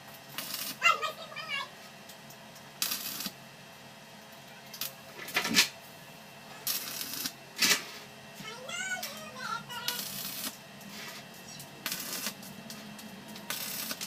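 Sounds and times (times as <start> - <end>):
welding arc crackling and hissing: 0.0 - 3.5, 4.2 - 14.0.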